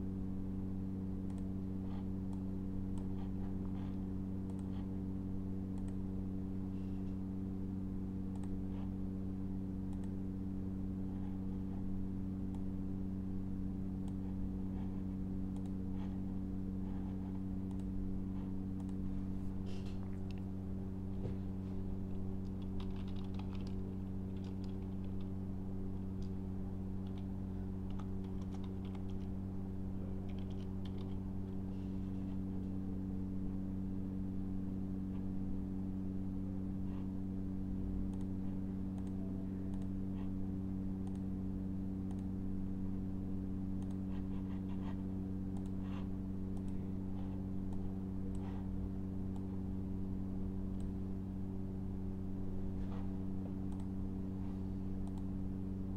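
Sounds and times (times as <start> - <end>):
steady low hum: 0.0 - 55.9
computer keyboard typing: 22.4 - 25.3, 27.8 - 29.3, 30.3 - 31.2.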